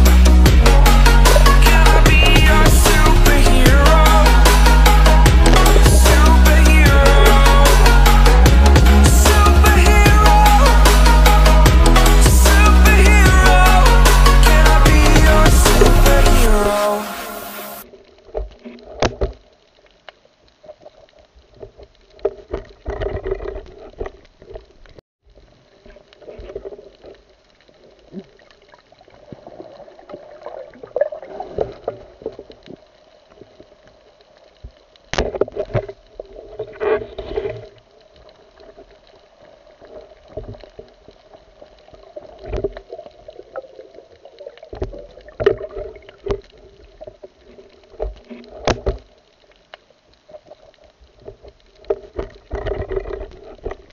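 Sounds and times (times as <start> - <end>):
underwater surges: 0.0 - 53.9
water moving against camera housing: 20.7 - 25.0, 35.1 - 38.0, 42.1 - 49.5, 50.3 - 53.9.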